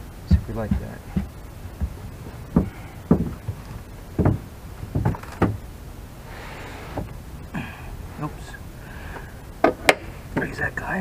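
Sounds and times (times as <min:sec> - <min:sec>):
hollow thumps of deck panel: 0:00.3 - 0:05.6.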